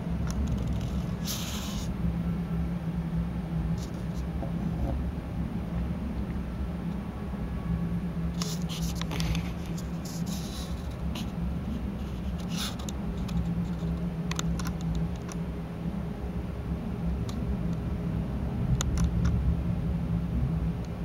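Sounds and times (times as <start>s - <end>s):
steady low hum: 0.0s - 21.0s
light scratching and clicking: 0.3s - 1.9s, 8.4s - 15.4s.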